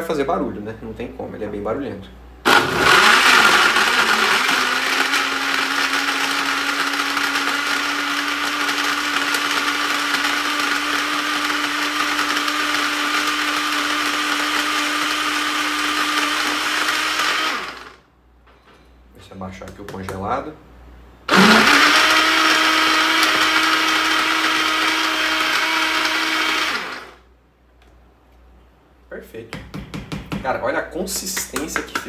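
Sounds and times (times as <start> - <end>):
blender running: 2.5 - 18.0, 21.3 - 27.2.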